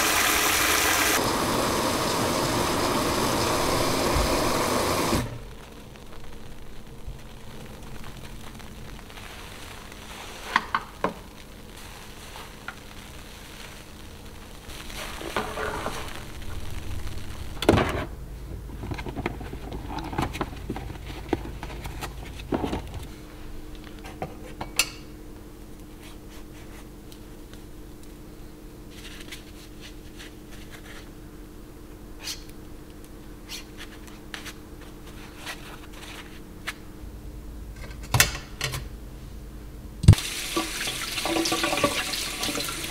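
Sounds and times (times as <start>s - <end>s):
items clattering in a steel sink: 18.7s - 23.0s, 40.2s - 42.9s.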